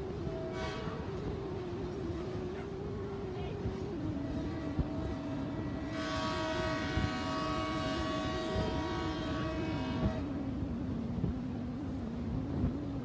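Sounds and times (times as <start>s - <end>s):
freight train rumbling past: 0.0s - 13.0s.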